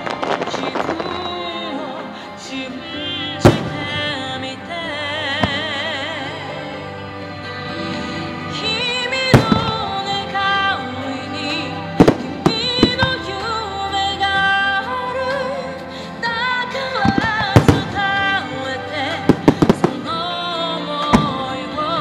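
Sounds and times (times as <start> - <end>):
song with singing voice: 0.0 - 22.0.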